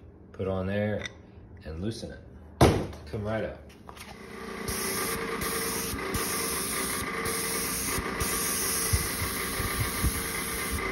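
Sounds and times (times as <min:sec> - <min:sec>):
motor and pump humming: 0:03.9 - 0:10.9
paint spray hissing: 0:04.7 - 0:10.9.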